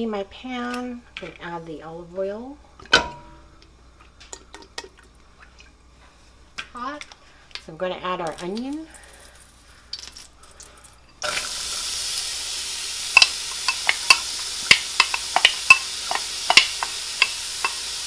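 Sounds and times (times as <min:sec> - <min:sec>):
onion sizzling in hot oil: 0:08.9 - 0:18.0.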